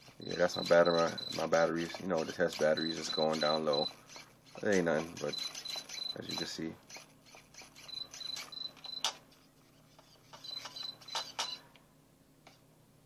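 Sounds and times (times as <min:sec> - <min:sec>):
electronic low-battery warning beeps: 0:00.2 - 0:06.5, 0:07.8 - 0:09.2, 0:10.4 - 0:11.6.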